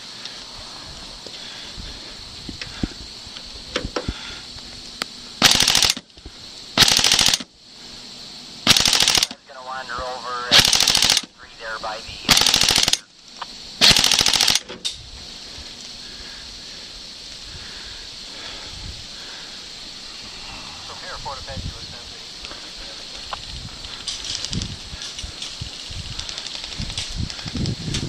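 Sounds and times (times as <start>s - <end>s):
airsoft gun firing bursts: 5.4s - 6.0s, 6.8s - 7.5s, 8.6s - 9.4s, 10.5s - 11.3s, 12.3s - 13.1s, 13.8s - 14.7s.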